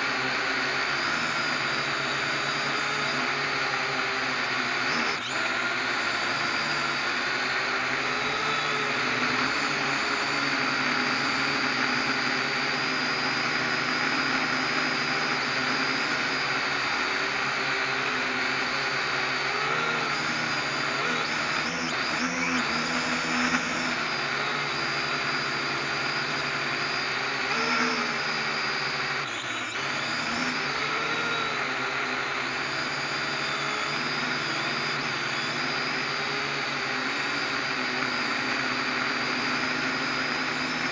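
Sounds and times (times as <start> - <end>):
drone propellers whirring: 0.0 - 40.9.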